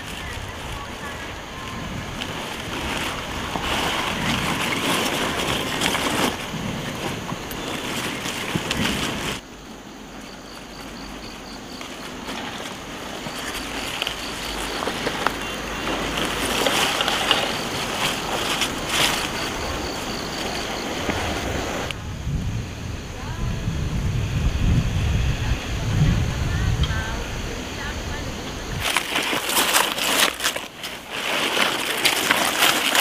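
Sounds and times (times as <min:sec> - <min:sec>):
leaves snapping: 0:00.0 - 0:09.4, 0:10.8 - 0:22.0, 0:28.8 - 0:33.0
cabbage leaves rustling: 0:00.0 - 0:22.0, 0:28.6 - 0:33.0
low wind rumble: 0:00.0 - 0:33.0.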